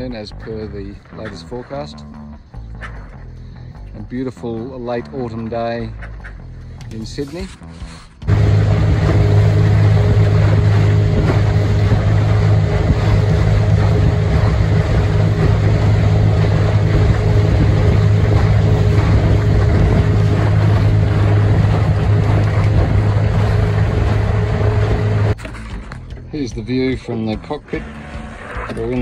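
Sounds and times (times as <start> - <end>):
outboard motor humming: 0.0 - 29.0
water rushing: 8.3 - 25.4
wind on microphone: 8.3 - 25.4.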